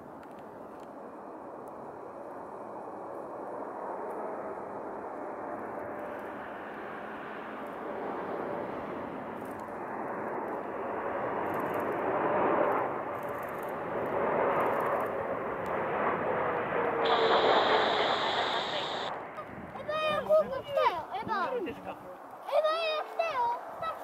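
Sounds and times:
faint jet engine whine: 0:00.0 - 0:21.7
jet aircraft rush: 0:15.2 - 0:19.5.

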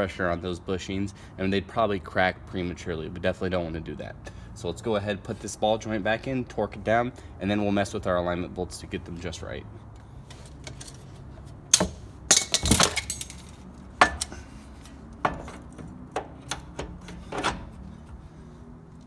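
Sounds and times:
metal-on-metal clanks and knocks: 0:11.7 - 0:14.4, 0:15.2 - 0:17.7.

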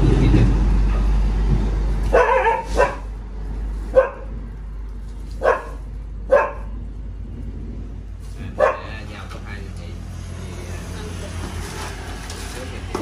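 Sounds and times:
dog barking: 0:02.1 - 0:03.1, 0:03.9 - 0:04.3, 0:05.4 - 0:06.8, 0:08.5 - 0:08.9.

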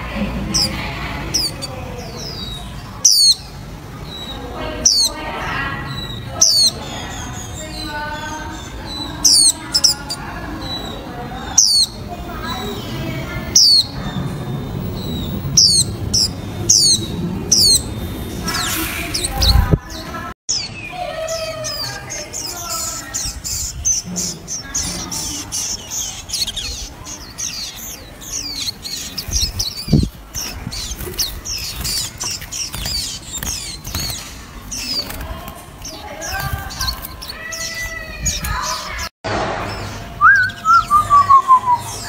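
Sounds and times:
small birds twittering: 0:00.0 - 0:42.0
descending whistled bird notes: 0:39.7 - 0:42.0.

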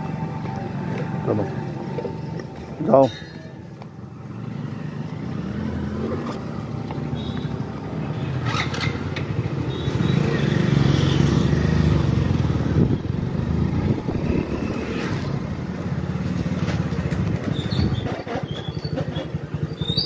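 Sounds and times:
motorcycle engine running: 0:03.7 - 0:20.0.

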